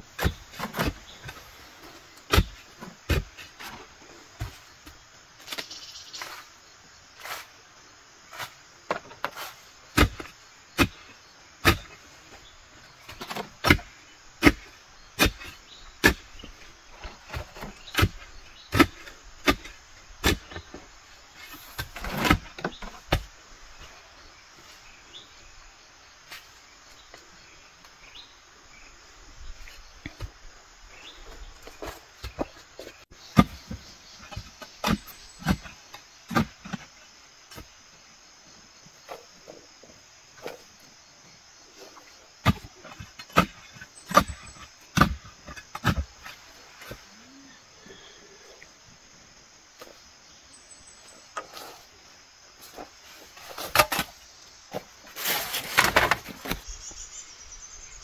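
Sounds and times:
insects chirring: 0.0 - 58.0
digging tool striking soil: 2.2 - 3.8, 8.3 - 11.0, 11.6 - 12.0, 13.1 - 20.6, 33.3 - 36.8, 42.4 - 47.0, 53.5 - 56.7.

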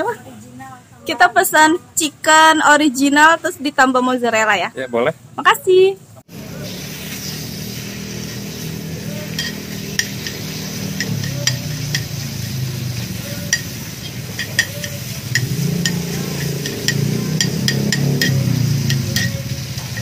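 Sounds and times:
chicken sizzling in oil: 6.3 - 20.0
metal tongs clicking and scraping: 9.2 - 20.0.

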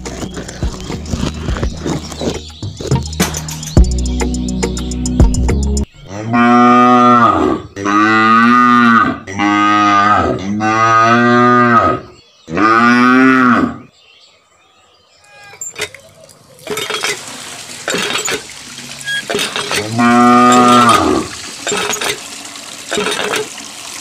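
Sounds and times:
background music: 0.0 - 5.9
cattle mooing: 6.1 - 13.8, 19.0 - 21.4.

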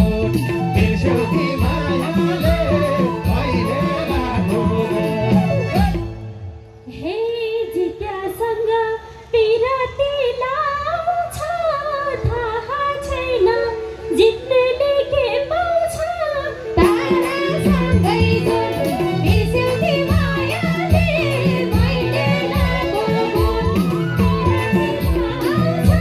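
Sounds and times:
woman singing folk song: 6.9 - 26.0.

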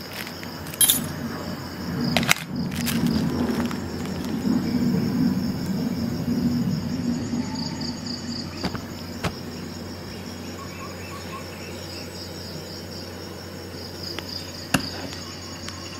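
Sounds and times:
insect chirping: 0.0 - 15.9
low rumble: 1.0 - 10.6.

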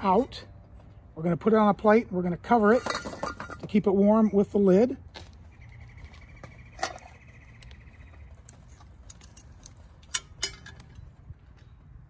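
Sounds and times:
camp cookware clinking: 2.5 - 3.9, 9.1 - 11.1.

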